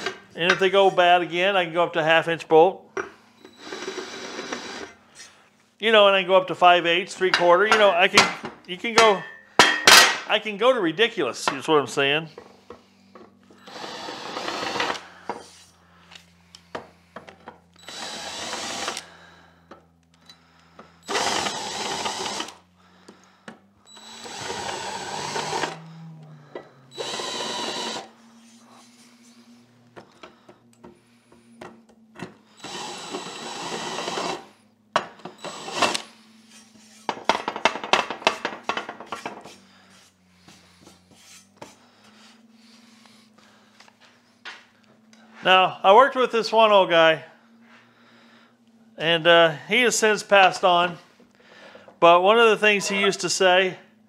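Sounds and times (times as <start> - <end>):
cordless drill boring metal: 3.4 - 5.0, 13.5 - 15.2, 17.8 - 19.2, 21.0 - 22.6, 23.9 - 28.1, 32.5 - 37.2.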